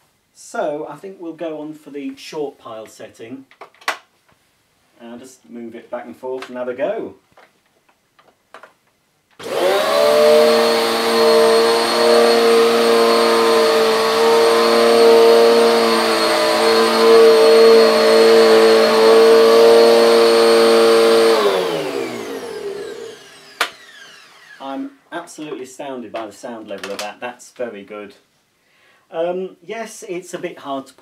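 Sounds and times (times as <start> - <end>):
vacuum cleaner running: 9.4 - 24.9.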